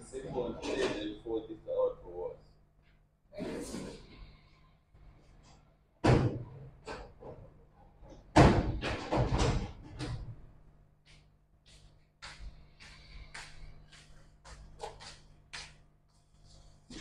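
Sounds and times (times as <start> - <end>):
objects knocking and thudding: 6.0 - 10.5.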